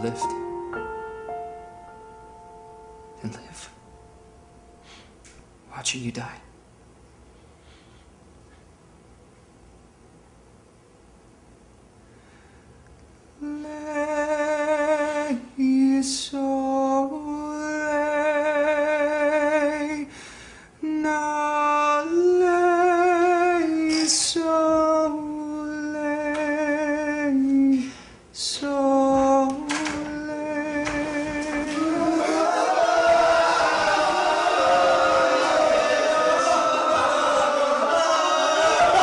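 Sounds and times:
solo voice singing with vibrato: 20.8 - 33.3
choir of voices: 29.4 - 39.0.

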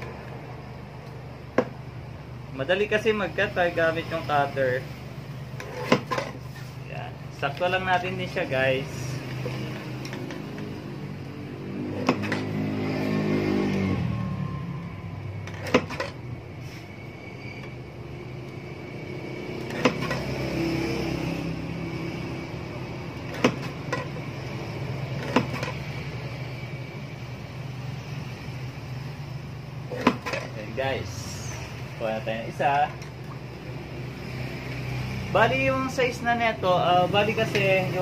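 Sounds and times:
steady low hum: 0.0 - 38.0
paper cutter blade chopping: 5.6 - 6.4, 12.0 - 12.5, 19.7 - 20.3.

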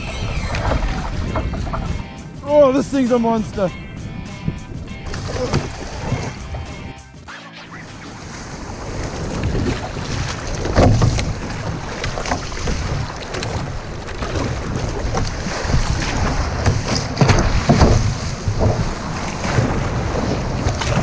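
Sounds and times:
wind buffeting microphone: 0.0 - 6.9, 8.1 - 21.0
paddle splashing water: 0.0 - 21.0
breaking surf: 7.7 - 21.0.

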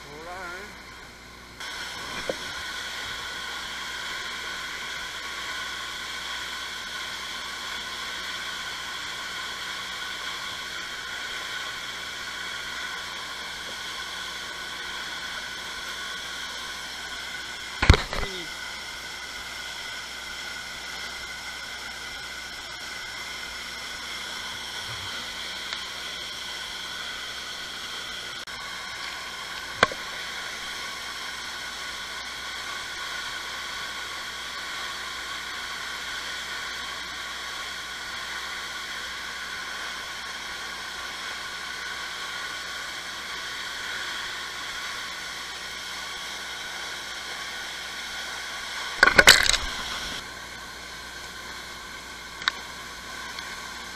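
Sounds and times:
sharp click: 17.8 - 18.4, 49.0 - 50.2.

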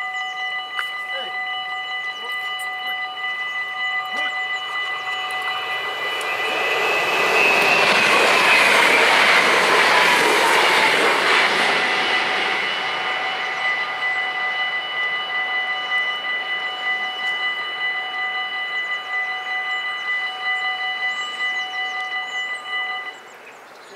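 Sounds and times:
level-crossing bells ringing: 0.0 - 23.3
train whine falling in pitch: 0.0 - 23.4
electric train rumble: 0.0 - 23.9.

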